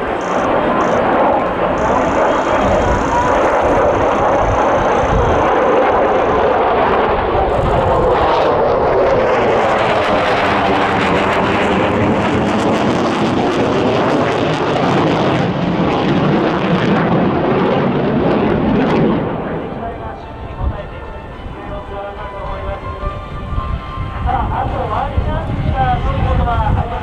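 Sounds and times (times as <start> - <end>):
fighter jet roaring overhead: 0.0 - 27.0.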